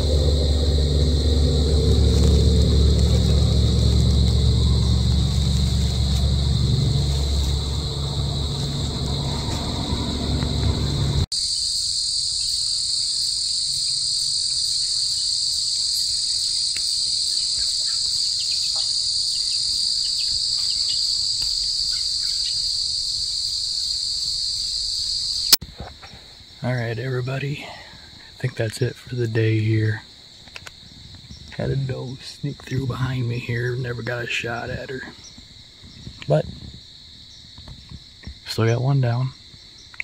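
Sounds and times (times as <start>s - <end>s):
low steady rumble: 0.0s - 11.3s
crickets and insects chirping: 0.0s - 40.0s.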